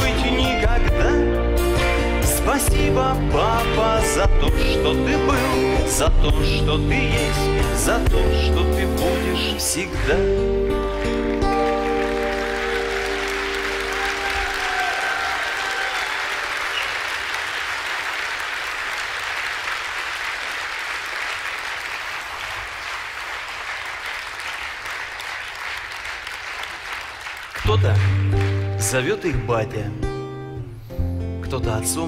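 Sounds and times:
audience applauding: 9.1 - 29.3.

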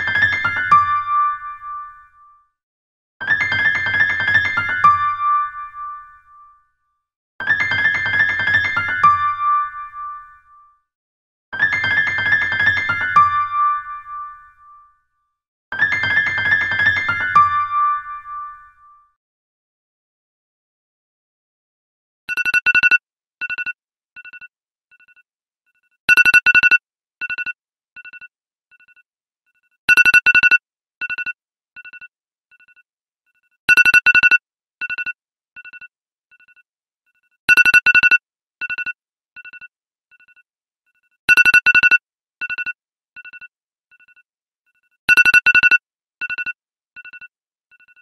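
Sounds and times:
electronic phone ringtone trill: 0.0 - 2.1, 3.2 - 6.4, 7.4 - 10.6, 11.6 - 14.9, 15.8 - 18.9, 37.5 - 40.4, 41.3 - 44.2, 45.1 - 48.0.

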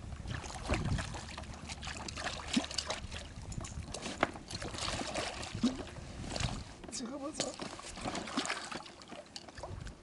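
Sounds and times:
water trickling and sloshing: 0.0 - 10.0
fish splashing at water surface: 0.3 - 6.6.

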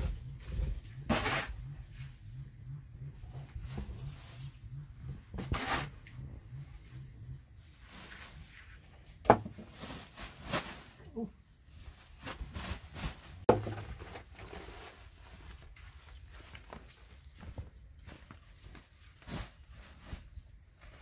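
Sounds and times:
sack rustling and scraping: 7.7 - 11.0, 11.7 - 17.2.

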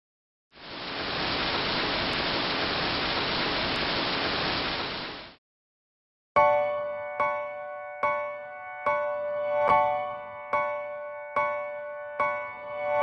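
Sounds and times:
static hiss: 0.6 - 5.4
piano chord ringing: 6.4 - 13.0.

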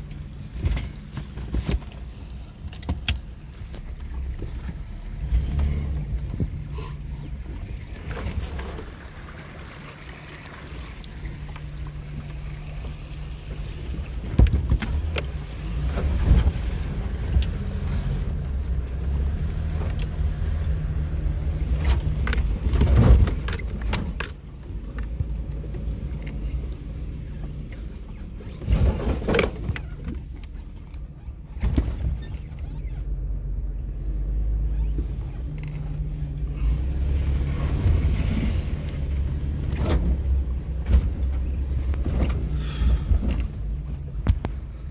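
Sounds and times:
engine hum: 0.0 - 44.9
vehicle body knocking and rattling: 11.4 - 18.7, 21.6 - 33.3, 39.6 - 44.9.

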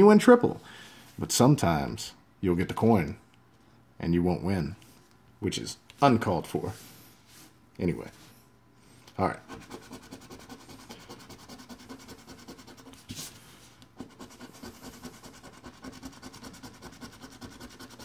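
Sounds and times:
coin scratching lottery ticket: 9.5 - 12.9, 14.0 - 18.0.

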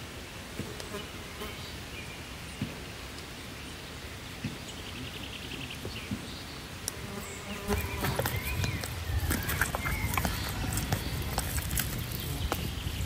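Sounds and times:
outdoor background noise: 0.0 - 13.0
faint bird chirps: 4.4 - 11.3.

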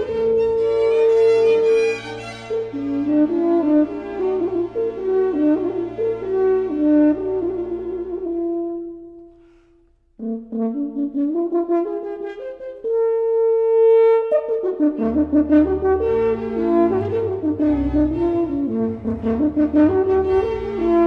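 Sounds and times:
instrumental background music: 10.2 - 21.0.

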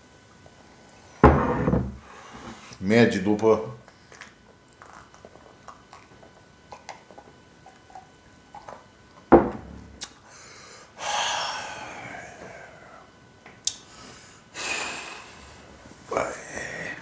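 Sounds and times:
glass set down on table: 1.2 - 1.9, 9.3 - 9.8
breathy exhale: 2.0 - 2.8, 10.2 - 13.1, 13.9 - 15.7
gulping and swallowing: 4.8 - 8.8.

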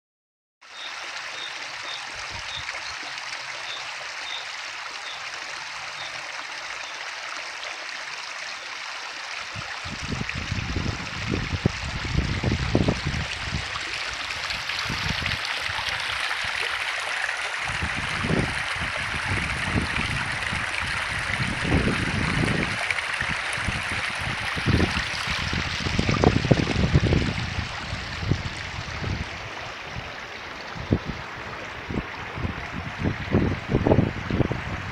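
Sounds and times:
water trickling from a pipe: 0.7 - 29.3
low rumbling on microphone: 23.7 - 34.9.

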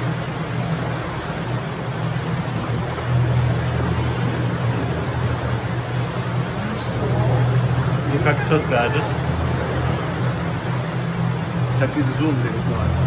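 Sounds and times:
boat motor humming: 0.0 - 13.0
rushing water: 0.0 - 13.0.

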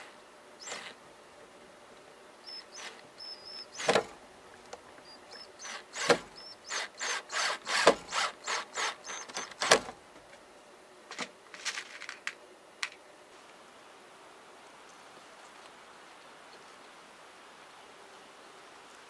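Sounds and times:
sharp wooden knocks: 3.8 - 4.2, 5.7 - 8.3, 9.2 - 10.0.

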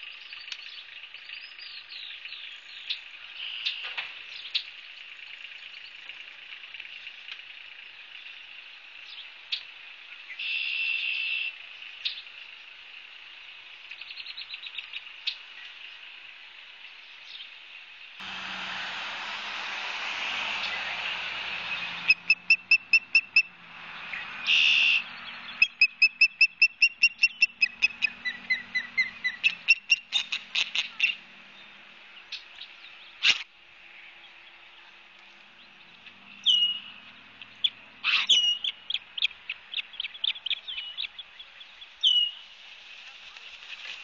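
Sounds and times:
osprey whistled chirps: 22.0 - 23.5, 24.5 - 30.3.

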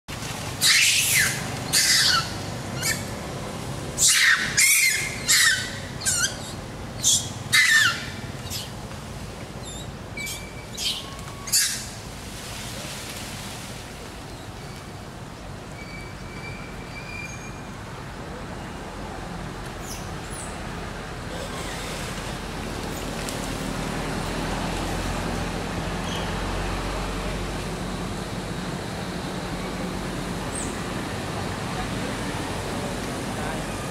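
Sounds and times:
macaques squealing: 0.6 - 3.2, 4.0 - 8.7, 9.6 - 12.0, 21.3 - 22.1.

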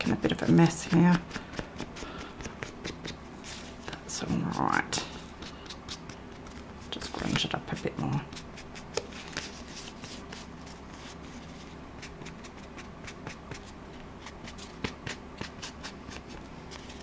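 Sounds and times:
card being handled: 5.4 - 17.0.

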